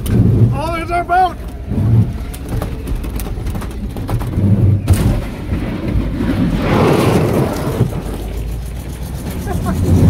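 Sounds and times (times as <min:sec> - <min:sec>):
truck engine rumbling: 0:00.0 - 0:10.0
rush of noise: 0:04.2 - 0:10.0.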